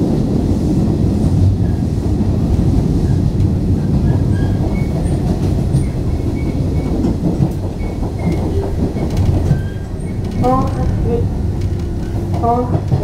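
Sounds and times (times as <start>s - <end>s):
train wheels rumbling on rails: 0.0s - 13.0s
faint train squeals: 3.9s - 12.9s.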